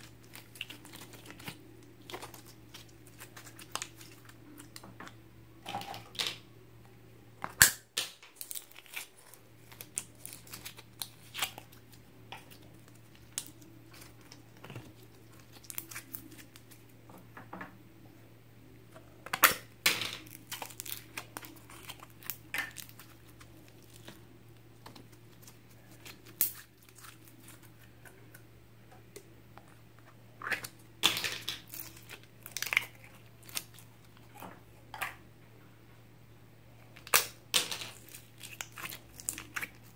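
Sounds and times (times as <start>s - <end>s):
slime sticky crackles: 0.0s - 4.8s, 8.3s - 16.9s, 20.3s - 28.4s, 37.0s - 39.9s
plastic tubs clicking and crinkling: 29.1s - 35.2s.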